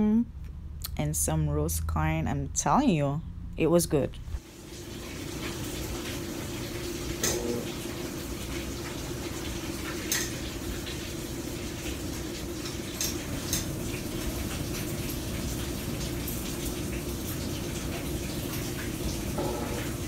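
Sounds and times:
washing machine filling with water: 4.4s - 20.0s.

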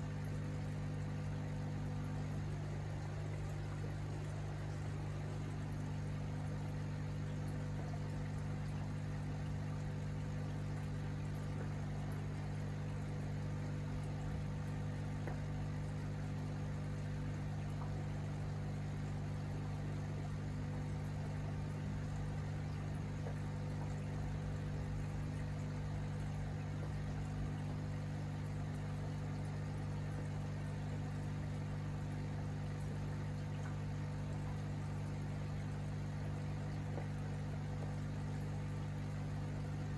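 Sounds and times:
aquarium equipment humming: 0.0s - 39.9s
bubbling water: 0.0s - 39.9s.

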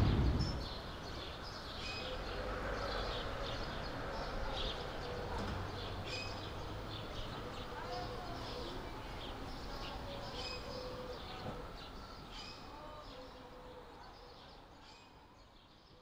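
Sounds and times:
low background rumble: 0.0s - 1.4s
small birds chirping: 0.0s - 16.0s.

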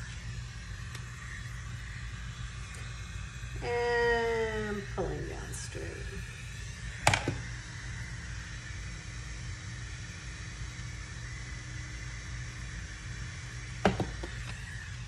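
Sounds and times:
low room hum: 0.0s - 15.0s
hair tools knocking on surface: 7.0s - 7.4s, 13.8s - 14.4s.

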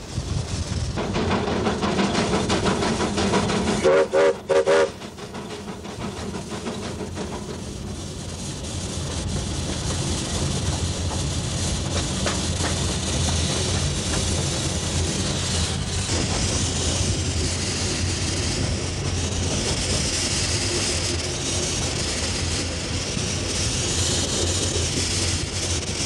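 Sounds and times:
steam locomotive exhaust beating: 0.0s - 26.0s
steam whistle toots: 3.8s - 5.0s.

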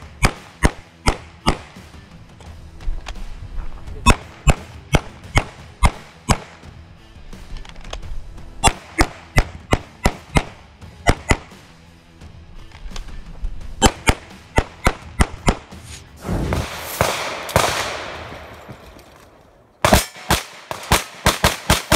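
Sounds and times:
rapid pistol fire: 0.0s - 1.8s, 4.0s - 6.6s, 8.6s - 11.6s, 13.8s - 18.5s, 19.8s - 21.9s.

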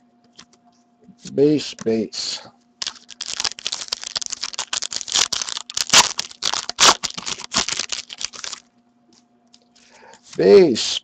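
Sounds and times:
wrapper tearing and crinkling: 2.8s - 8.6s.

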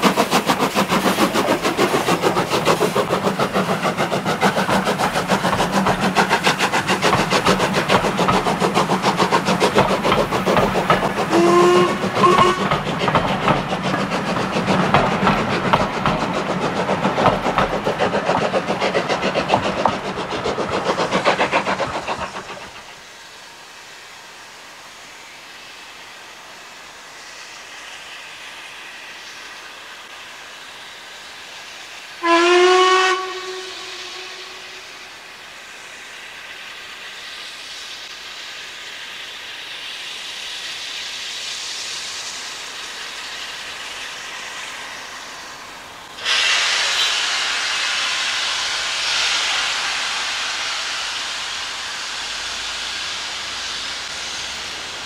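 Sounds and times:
steam hissing: 0.0s - 55.0s
steam locomotive whistle: 11.2s - 12.9s, 32.2s - 35.0s.

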